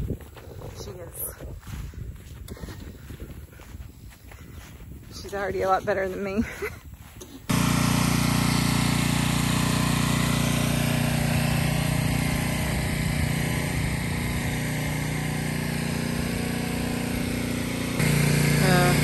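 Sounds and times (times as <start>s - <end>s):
pressure washer engine running: 7.5s - 19.0s.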